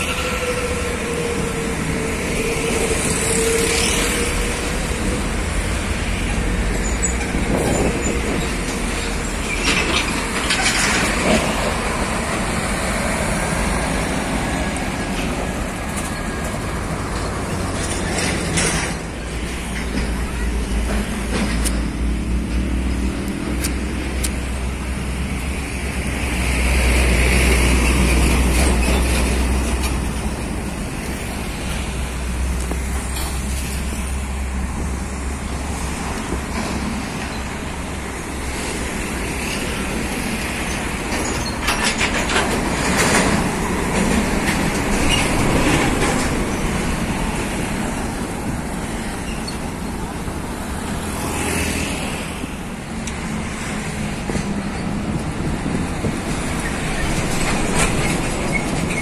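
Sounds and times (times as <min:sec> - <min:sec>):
diesel truck engines rumbling: 0:00.0 - 0:59.0
trailers rattling: 0:00.0 - 0:59.0.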